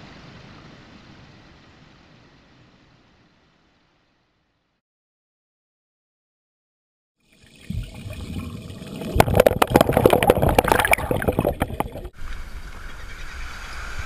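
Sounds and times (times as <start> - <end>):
underwater water splashing and gurgling: 7.2 - 12.2
sharp knocks and splashes: 9.0 - 12.1.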